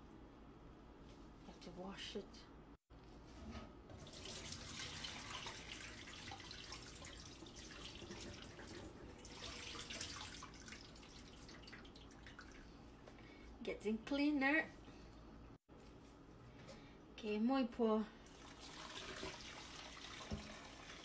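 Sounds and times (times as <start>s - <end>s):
water pouring into steel sink: 3.9s - 12.6s, 18.3s - 21.0s.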